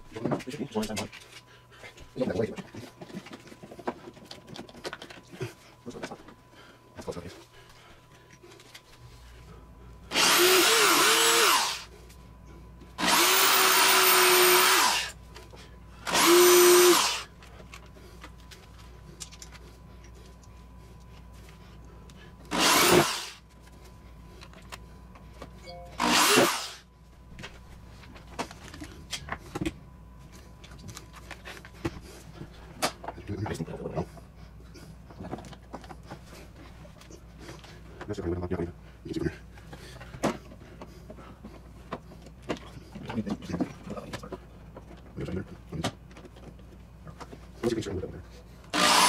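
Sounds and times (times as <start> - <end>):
power drill drilling into wood: 10.1 - 11.9, 13.0 - 15.1, 16.1 - 17.3, 22.5 - 23.4, 26.0 - 26.8, 48.7 - 49.0.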